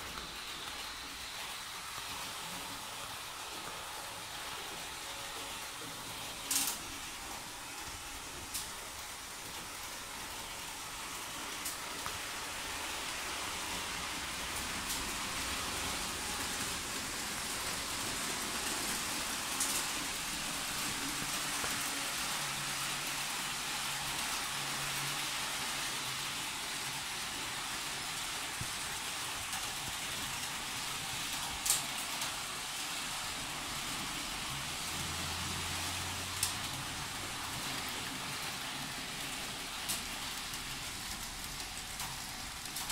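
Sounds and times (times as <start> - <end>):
model train wheels on track: 0.0 - 42.9.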